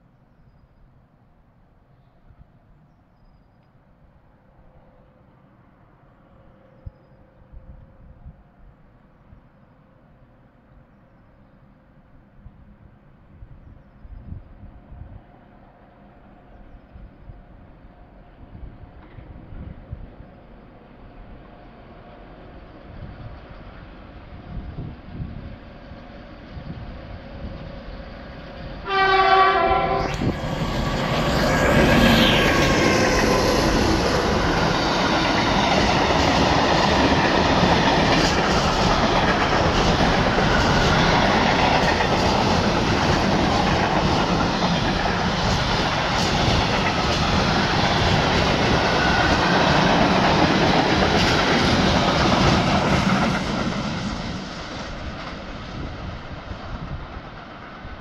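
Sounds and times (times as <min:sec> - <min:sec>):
diesel locomotive engine passing: 0:03.8 - 0:58.0
locomotive horn blast: 0:28.8 - 0:30.4.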